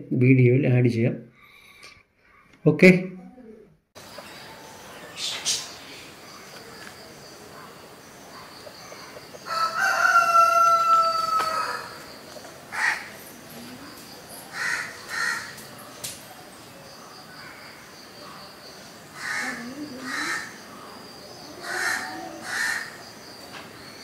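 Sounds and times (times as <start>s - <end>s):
crow cawing: 8.4s - 12.1s, 12.7s - 13.2s, 14.5s - 15.7s, 17.3s - 18.5s, 19.2s - 20.8s, 21.4s - 23.1s
rooster crowing: 8.6s - 13.1s.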